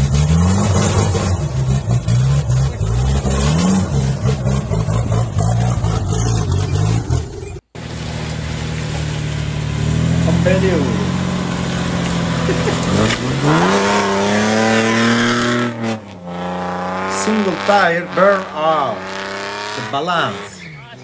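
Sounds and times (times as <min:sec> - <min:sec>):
diesel engine revving hard: 0:00.0 - 0:08.1, 0:08.8 - 0:21.0
steady engine drone: 0:07.2 - 0:20.4.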